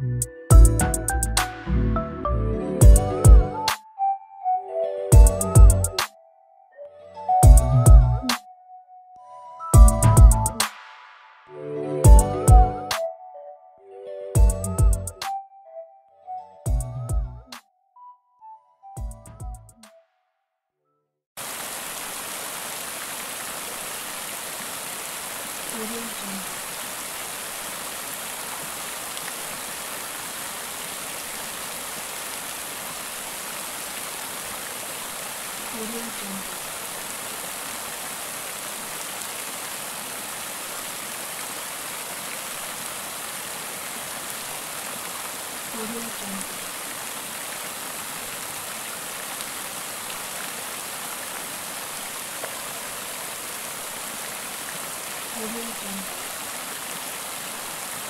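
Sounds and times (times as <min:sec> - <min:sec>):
waterfall pouring onto rocks: 0:21.4 - 0:58.0.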